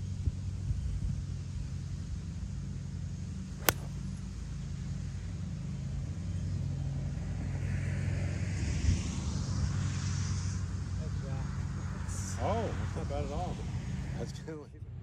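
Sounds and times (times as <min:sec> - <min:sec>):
golf club striking ball: 0:03.6 - 0:04.2.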